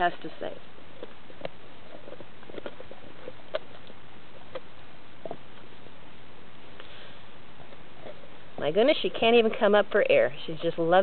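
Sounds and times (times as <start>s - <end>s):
teeth scraping on bone: 0.8s - 5.9s.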